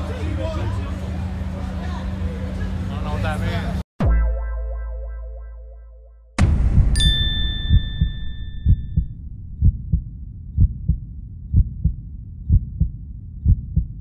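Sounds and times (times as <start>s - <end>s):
heartbeat-like double thump: 6.4s - 14.0s
chime: 7.0s - 8.9s.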